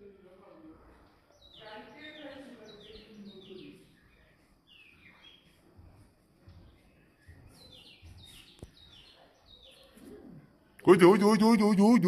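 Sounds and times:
bird chirps: 0:06.7 - 0:10.0.

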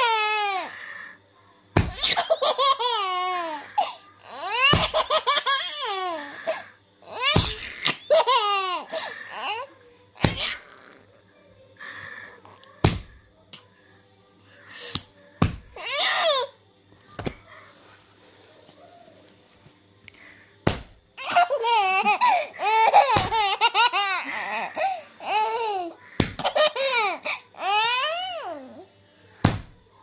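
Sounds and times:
baby laughing: 0:02.0 - 0:09.6, 0:21.2 - 0:27.8.

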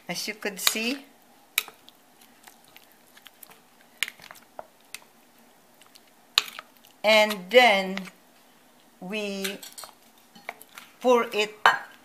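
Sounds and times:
spoons stirring wet sticky rice: 0:00.1 - 0:11.6.

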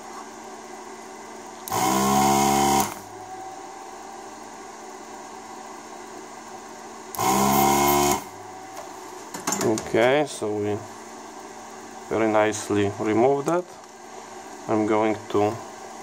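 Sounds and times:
desoldering pump buzzing: 0:01.4 - 0:04.0, 0:07.0 - 0:13.4.

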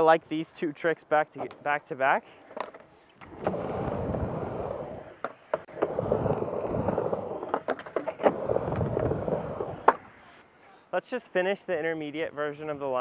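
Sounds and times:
skateboard wheels rolling on ramp: 0:02.5 - 0:10.1
skateboard clacks: 0:04.8 - 0:10.1.

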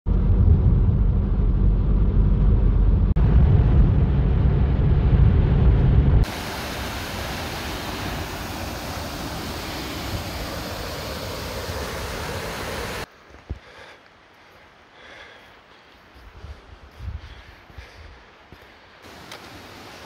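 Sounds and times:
car road and engine rumble: 0:00.1 - 0:06.5
steady rushing hiss: 0:06.2 - 0:20.0.

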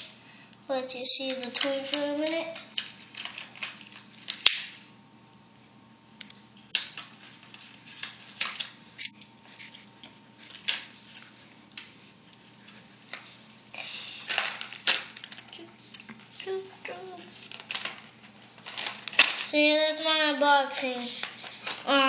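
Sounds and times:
plastic packaging rustle: 0:01.2 - 0:04.8, 0:06.8 - 0:20.2, 0:20.8 - 0:22.0
plastic packaging crinkling: 0:01.3 - 0:04.8, 0:13.0 - 0:19.7.

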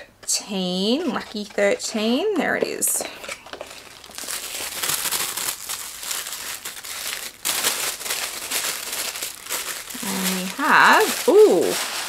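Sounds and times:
tissue paper crinkling: 0:03.2 - 0:12.0.

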